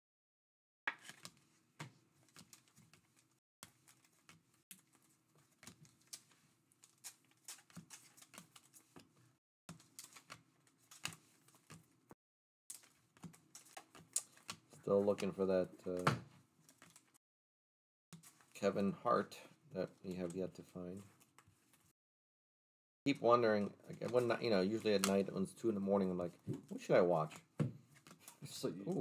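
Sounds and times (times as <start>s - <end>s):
cards being flicked through: 24.0s - 25.3s.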